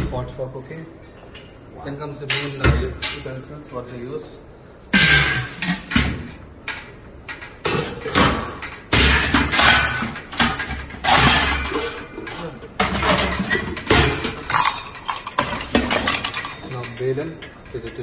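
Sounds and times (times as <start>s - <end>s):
brass vessels clanking and scraping: 4.9s - 18.0s.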